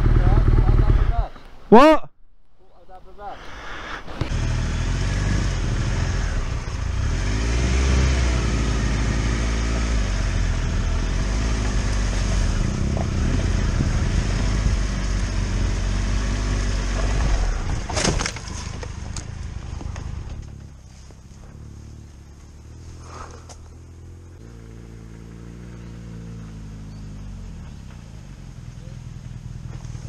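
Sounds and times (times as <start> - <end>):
motorcycle engine revving: 0.0 - 1.3, 4.2 - 30.0
motorcycle falling clatter: 17.0 - 20.7.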